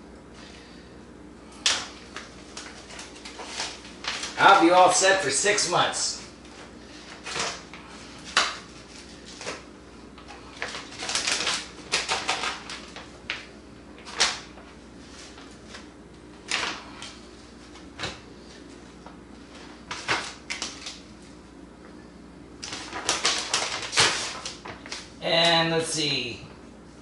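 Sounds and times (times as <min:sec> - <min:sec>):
plastic bag crinkling: 0:01.9 - 0:05.6, 0:10.2 - 0:17.2, 0:22.6 - 0:25.2.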